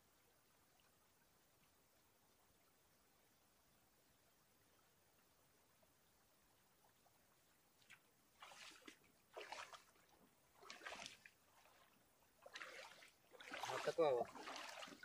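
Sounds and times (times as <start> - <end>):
boots splashing through shallow water: 7.8 - 15.0.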